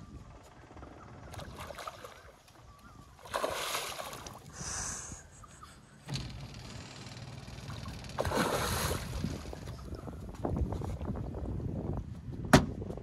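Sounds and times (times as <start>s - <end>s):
fish splashing: 1.4s - 2.5s, 3.2s - 4.5s, 7.7s - 10.0s
water sloshing in net: 1.4s - 2.6s, 3.2s - 4.5s, 7.7s - 10.0s.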